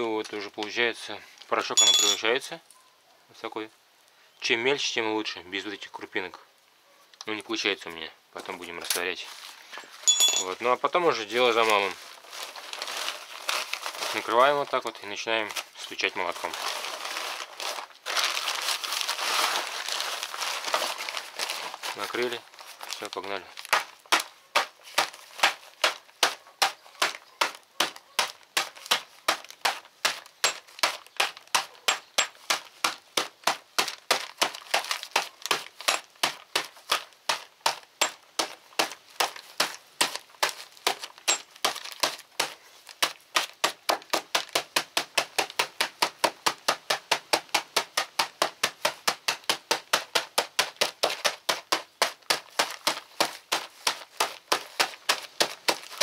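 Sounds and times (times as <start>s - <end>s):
hammer crushing chunks in bag: 8.9s - 56.0s.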